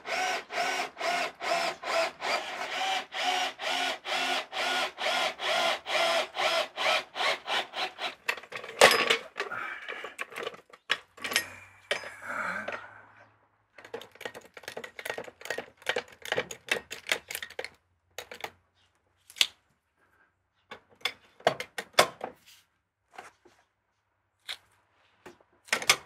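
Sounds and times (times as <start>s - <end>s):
small clicks and knocks: 13.8s - 18.6s.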